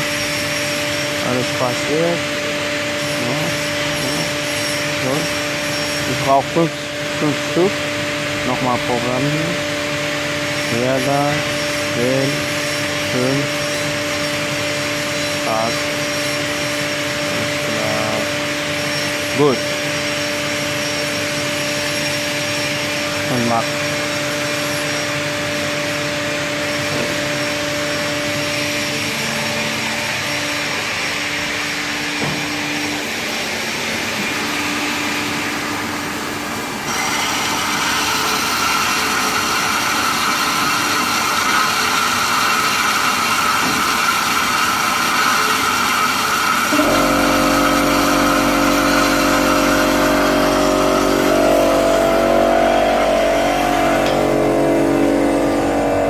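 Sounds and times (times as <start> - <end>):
band saw machine hum: 0.0 - 56.0
high-pitched machine whine: 0.0 - 56.0
deep hum with steady tones: 46.7 - 56.0.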